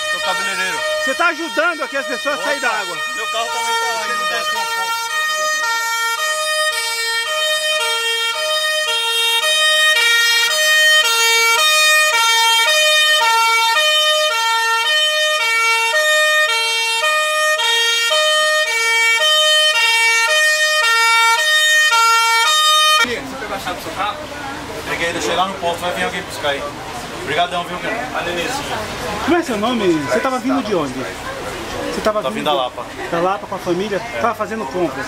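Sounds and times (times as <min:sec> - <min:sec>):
two-tone siren: 0:00.0 - 0:23.1.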